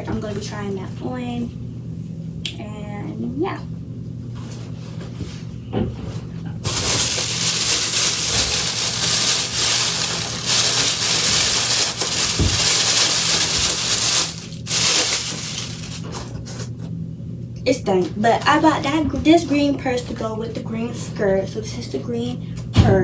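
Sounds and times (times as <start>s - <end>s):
plastic bag crinkling: 6.6s - 16.4s.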